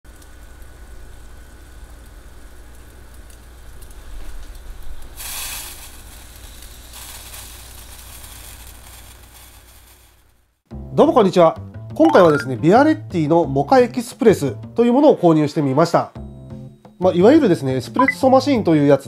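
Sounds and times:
moka pot gurgling and crackling: 0.1 - 10.3
hissing sputter of steam: 4.0 - 10.2.

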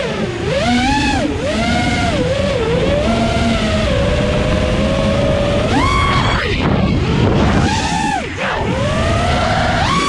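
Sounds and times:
drone motors whining: 0.0 - 10.0
wind on microphone: 0.3 - 10.0.

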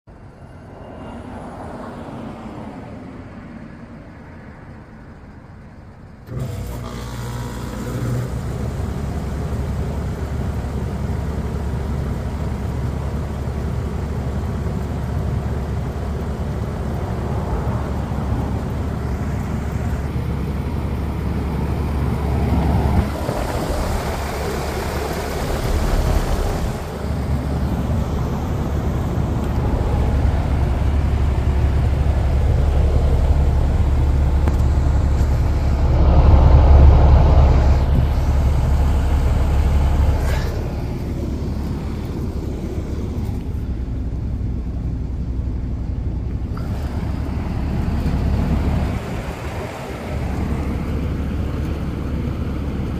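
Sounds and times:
heat pump humming: 6.2 - 52.9
rush of air: 22.2 - 44.6.

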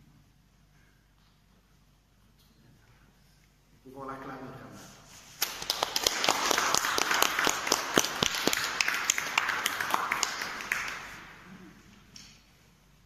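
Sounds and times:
people clapping: 5.4 - 12.4.

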